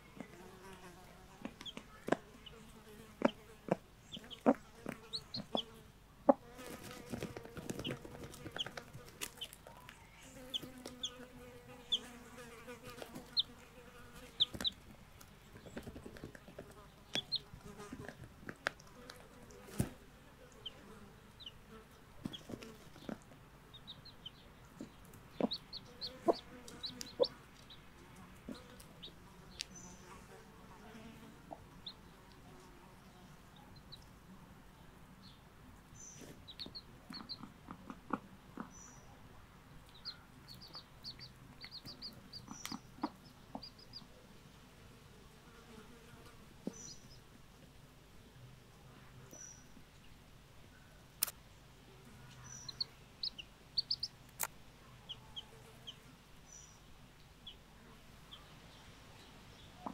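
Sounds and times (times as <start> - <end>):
chicks peeping: 1.4 - 30.1, 31.3 - 34.1, 36.0 - 39.1, 39.8 - 44.2, 52.0 - 56.8, 57.4 - 57.6
hen clucking low: 3.2 - 6.4, 24.8 - 27.4.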